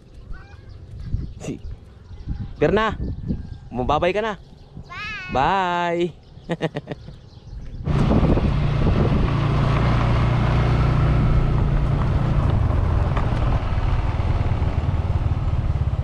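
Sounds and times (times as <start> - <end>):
wind and road noise: 0.0 - 16.0
motorcycle engine running: 7.8 - 16.0.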